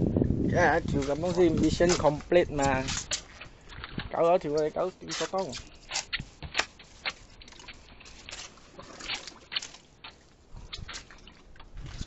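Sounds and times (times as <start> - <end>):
water lapping against boat hull: 0.6 - 12.0
water splashes: 0.7 - 12.0.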